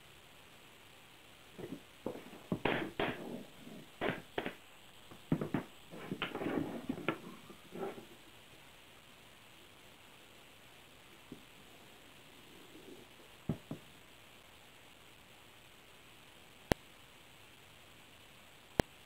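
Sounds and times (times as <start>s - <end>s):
wood knocking on workbench: 1.6s - 3.4s, 5.3s - 7.2s.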